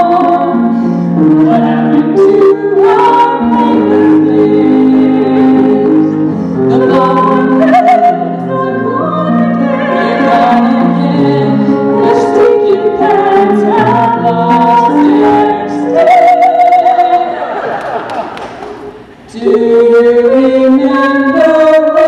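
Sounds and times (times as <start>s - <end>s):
group singing in harmony: 0.0s - 17.8s, 19.3s - 22.0s.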